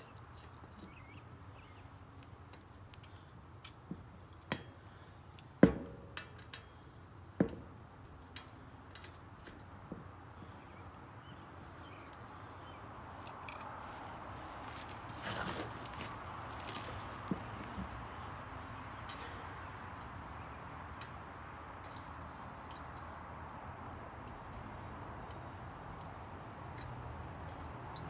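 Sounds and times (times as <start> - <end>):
lug nuts and socket clinking: 0.0 - 12.6, 25.2 - 28.0.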